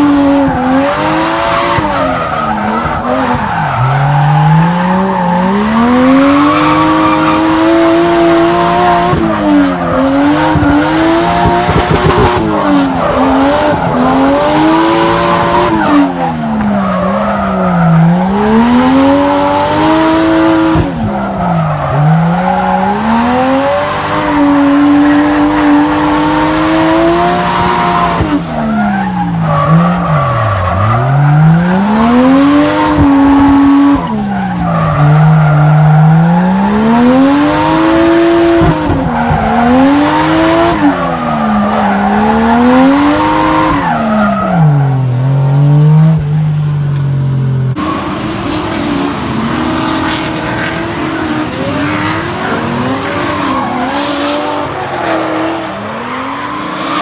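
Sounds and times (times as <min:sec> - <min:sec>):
car engine revving: 0:00.0 - 0:57.0
several drift car engines: 0:00.0 - 0:57.0.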